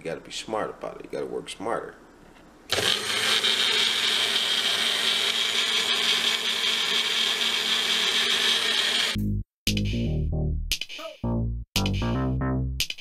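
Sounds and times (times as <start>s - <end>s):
blender whirring: 2.7s - 9.2s.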